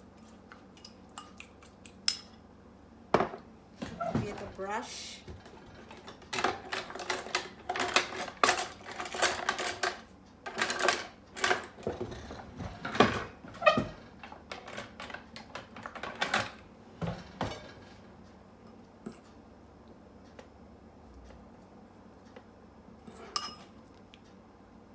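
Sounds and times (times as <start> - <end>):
cutlery clinking in a drawer: 5.3 - 17.9.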